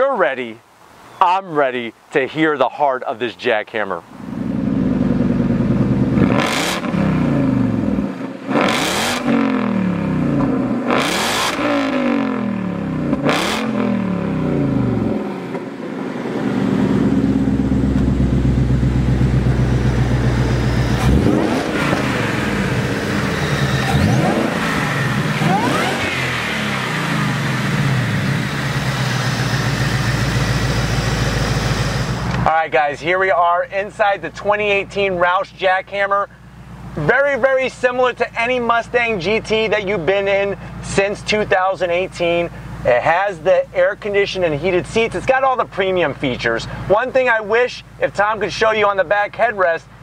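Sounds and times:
car engine idling: 4.1 - 50.0
car engine revving: 4.2 - 32.6.

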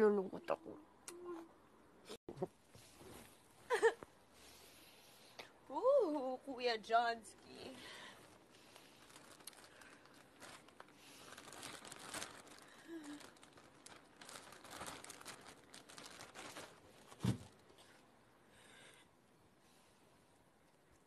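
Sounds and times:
bedding rustling: 8.0 - 17.8
dull thump: 17.2 - 17.5.

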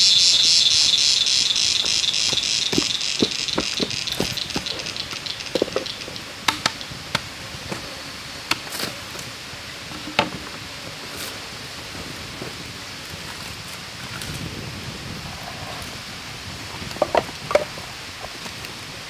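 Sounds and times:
steady hiss: 0.0 - 19.0
bamboo tube knocks and clicks: 5.6 - 7.3.

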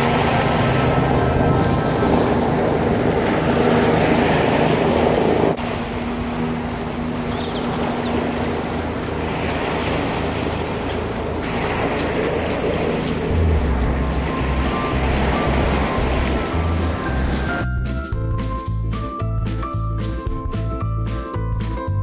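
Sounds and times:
wind on microphone: 0.0 - 17.7
lapping waves: 0.0 - 18.6.

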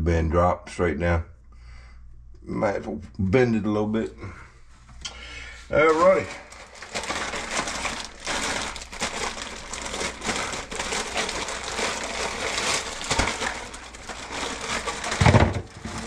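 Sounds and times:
plastic bag crinkling: 5.8 - 16.0.

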